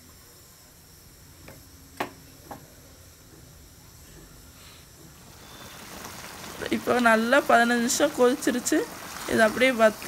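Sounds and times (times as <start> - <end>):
faint steady hiss: 0.0 - 10.0.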